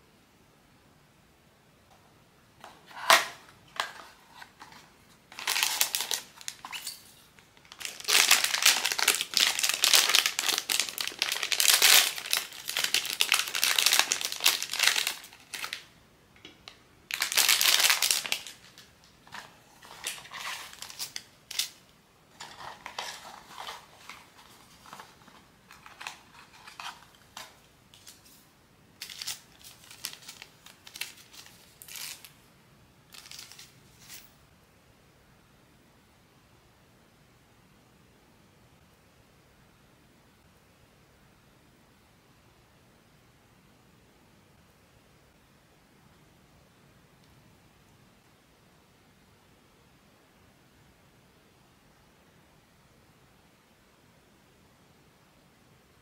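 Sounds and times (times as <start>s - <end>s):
crinkling wrapper: 2.9s - 15.9s, 16.6s - 28.4s, 29.0s - 32.4s, 33.1s - 34.3s
packaging rustles and ticks: 3.8s - 15.8s, 16.6s - 21.8s, 22.4s - 28.4s, 29.0s - 32.3s.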